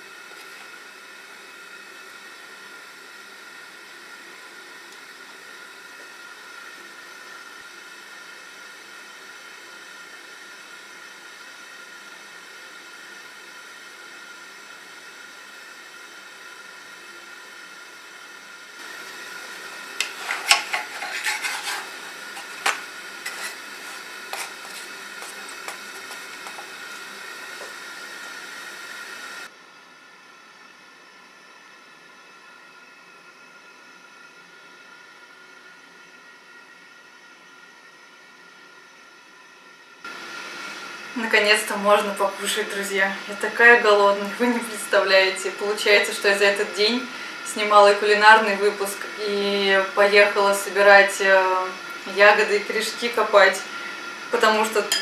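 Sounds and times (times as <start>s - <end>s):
steady hiss: 0.0s - 29.5s
utensil scraping frying pan: 19.6s - 27.7s.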